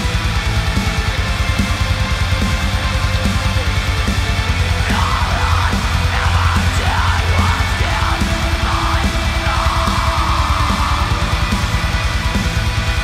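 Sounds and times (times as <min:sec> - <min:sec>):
black metal music: 0:00.0 - 0:13.0
distorted guitars: 0:00.0 - 0:13.0
rapid kick drumming: 0:00.0 - 0:13.0
harsh screamed vocal: 0:04.6 - 0:13.0.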